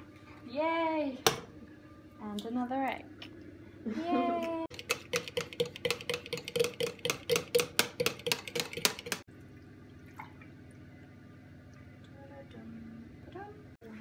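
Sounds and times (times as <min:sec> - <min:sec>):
eggs beaten in plastic jug: 0:04.7 - 0:09.3.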